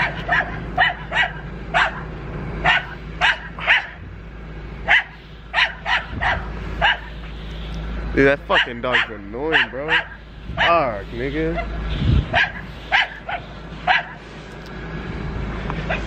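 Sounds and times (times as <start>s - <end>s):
dog barking: 0.0s - 4.0s, 4.9s - 7.2s, 8.5s - 10.9s, 11.5s - 14.2s.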